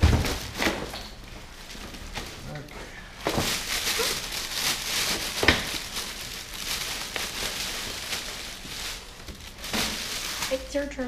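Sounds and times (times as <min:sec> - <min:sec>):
plastic bag crinkling: 0:00.0 - 0:11.0
foam pieces rubbing: 0:03.2 - 0:10.8.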